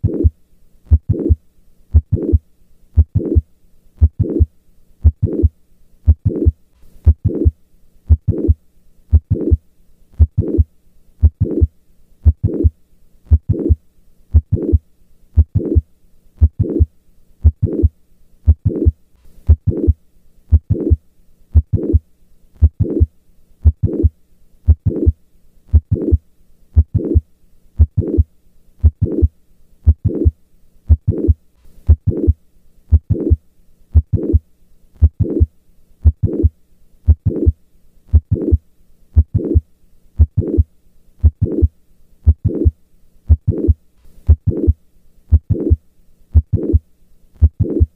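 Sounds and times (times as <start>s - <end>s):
heartbeat through stethoscope: 0.0s - 0.3s, 0.9s - 2.4s, 3.0s - 3.4s, 4.0s - 5.5s, 6.1s - 7.5s, 8.1s - 9.6s, 10.2s - 10.6s, 11.2s - 12.7s, 13.3s - 14.8s, 15.4s - 15.8s, 16.4s - 17.9s, 18.5s - 21.0s, 21.6s - 22.0s, 22.6s - 24.1s, 24.7s - 25.1s, 25.7s - 26.2s, 26.8s - 27.2s, 27.8s - 28.2s, 28.8s - 30.3s, 30.9s - 34.4s, 35.0s - 36.5s, 37.1s - 38.6s, 39.2s - 39.6s, 40.2s - 42.7s, 43.3s - 46.8s, 47.4s - 47.9s
heart murmur: 0.9s - 2.4s, 3.0s - 3.4s, 4.0s - 5.5s, 6.1s - 7.5s, 8.1s - 9.6s, 10.2s - 10.6s, 11.2s - 12.7s, 14.4s - 14.8s, 15.4s - 15.8s, 16.4s - 17.9s, 18.5s - 18.9s, 19.5s - 21.0s, 22.6s - 24.1s, 24.7s - 26.2s, 26.8s - 27.2s, 27.8s - 28.2s, 28.8s - 29.3s, 29.9s - 30.3s, 30.9s - 33.4s, 34.0s - 34.4s, 35.0s - 36.5s, 37.1s - 38.6s, 39.2s - 39.6s, 40.2s - 41.7s, 42.3s - 42.7s, 43.3s - 45.8s, 46.4s - 46.8s, 47.4s - 47.9s.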